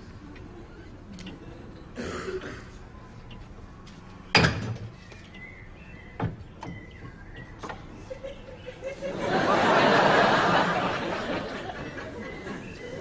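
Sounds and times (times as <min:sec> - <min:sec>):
studio audience laughter: 0:08.0 - 0:13.0.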